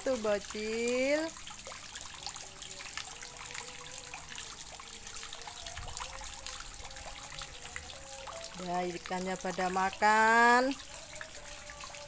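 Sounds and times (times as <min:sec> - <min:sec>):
water drips and splashes: 0:00.0 - 0:12.0
water trickling into a pond: 0:00.0 - 0:12.0.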